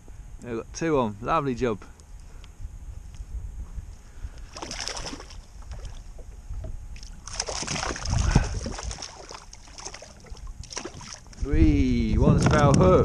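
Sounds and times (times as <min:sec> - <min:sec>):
wind rumbling on microphone: 0:00.0 - 0:13.0
fish splashing at water surface: 0:04.5 - 0:06.1, 0:07.0 - 0:11.4.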